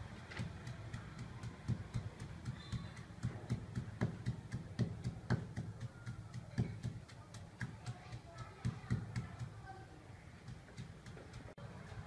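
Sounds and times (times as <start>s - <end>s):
wooden pestle pounding in mortar: 0.0s - 9.6s, 10.4s - 12.0s.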